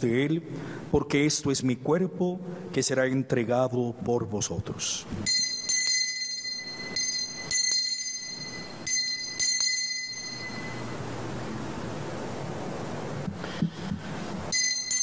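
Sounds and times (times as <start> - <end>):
altar bell ringing: 5.2 - 11.2, 14.5 - 15.0
steady hiss: 10.3 - 15.0.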